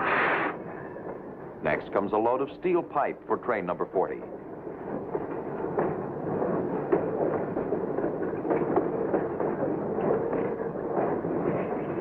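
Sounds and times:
clanks and knocks: 0:04.2 - 0:12.0.

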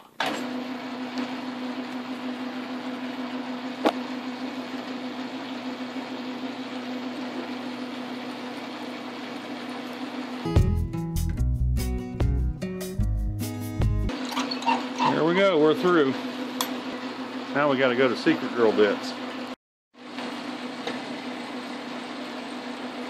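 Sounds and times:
lathe motor hum: 0:00.4 - 0:10.4.

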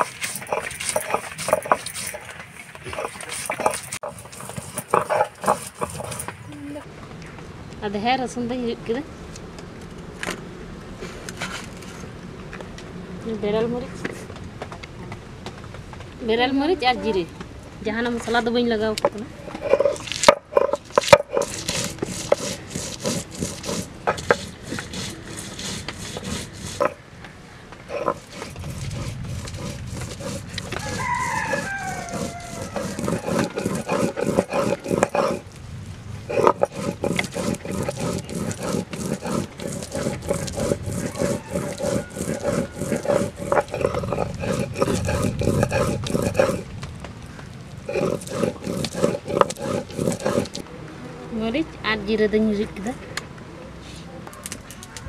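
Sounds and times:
stone roller grinding on slab: 0:00.0 - 0:06.8, 0:18.0 - 0:27.0, 0:27.8 - 0:35.6, 0:36.2 - 0:46.9, 0:47.8 - 0:50.6
rooster crowing: 0:30.6 - 0:34.1, 0:40.8 - 0:43.5.

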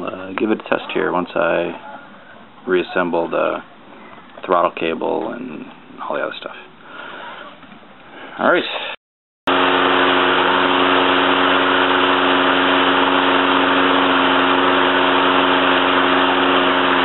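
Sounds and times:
lawnmower engine running: 0:09.5 - 0:17.0.

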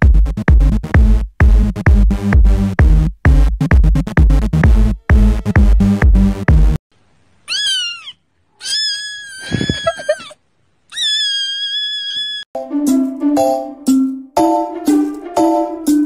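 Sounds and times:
electronic dance beat: 0:00.0 - 0:06.8
kitten meowing: 0:07.5 - 0:12.4.

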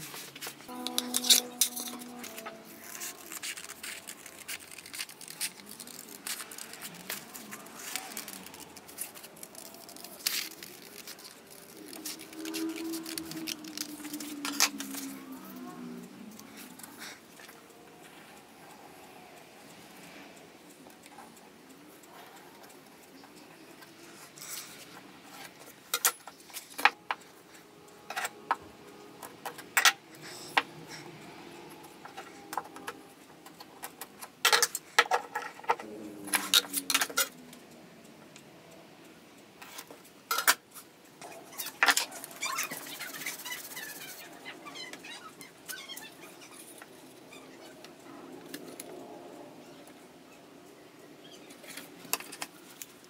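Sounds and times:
small hard objects clattering: 0:00.7 - 0:15.1.

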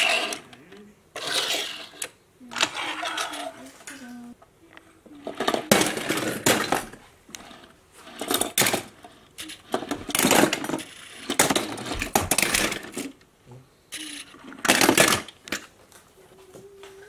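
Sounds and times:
metal toy cars clinking: 0:00.0 - 0:00.5, 0:01.2 - 0:03.6, 0:05.2 - 0:13.2, 0:13.9 - 0:15.7.

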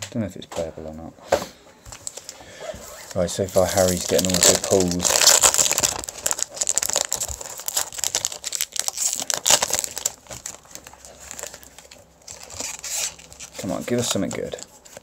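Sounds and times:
foil wrapper crinkling and tearing: 0:03.2 - 0:15.0.

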